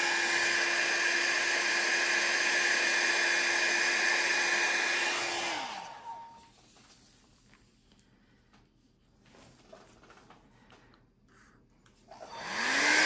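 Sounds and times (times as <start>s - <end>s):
hair dryer running: 0.0s - 6.7s, 12.1s - 13.0s.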